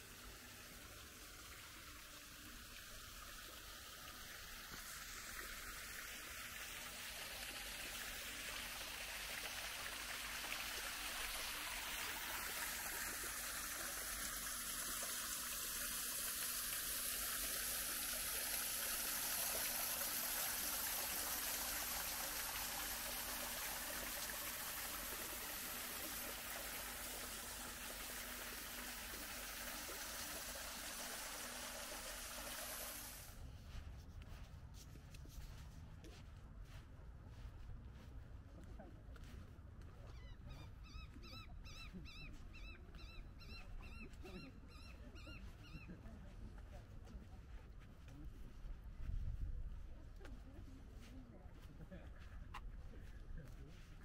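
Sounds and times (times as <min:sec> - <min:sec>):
stream water rushing: 0:03.9 - 0:33.3.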